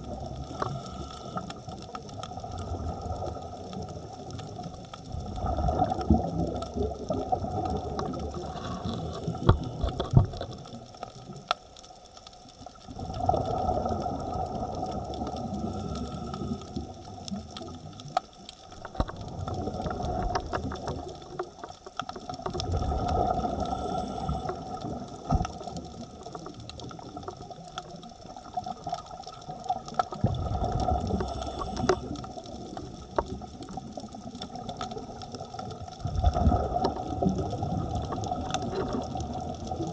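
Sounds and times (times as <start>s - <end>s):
faint steady whine: 0.0s - 5.6s, 13.8s - 22.1s, 23.2s - 34.3s
exhaled bubbles underwater: 0.0s - 39.9s.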